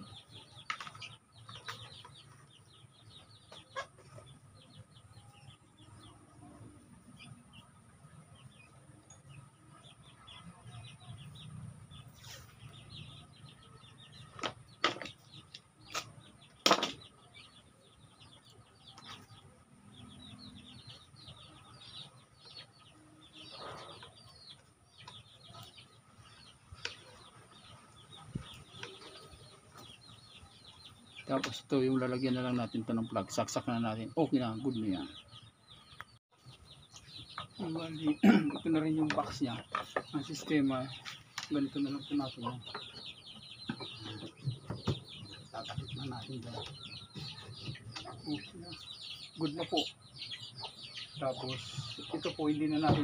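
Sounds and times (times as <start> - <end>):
chicks peeping: 0.0 - 53.0
clicks and knocks from handling: 14.3 - 17.1.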